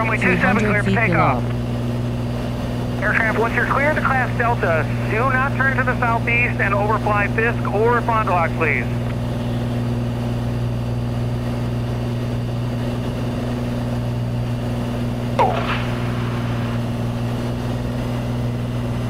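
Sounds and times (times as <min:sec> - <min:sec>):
propeller plane engine droning: 0:00.0 - 0:19.0
falling chirp: 0:15.4 - 0:17.2.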